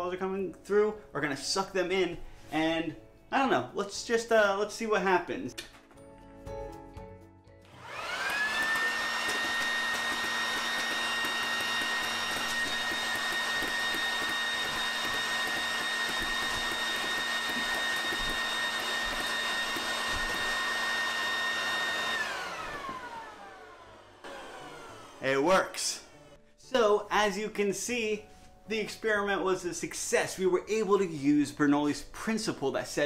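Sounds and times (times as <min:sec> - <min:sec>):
leaf blower motor whining: 0:07.7 - 0:26.4.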